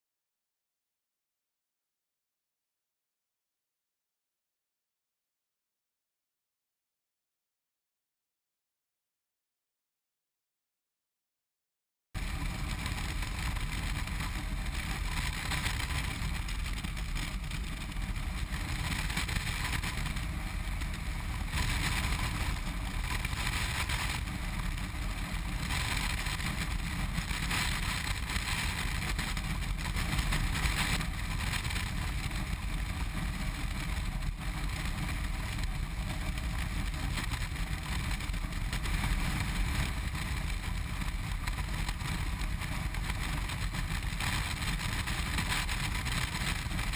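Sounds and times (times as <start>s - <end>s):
motorcycle engine: 12.2s - 46.9s
wind rushing over microphone: 12.2s - 46.9s.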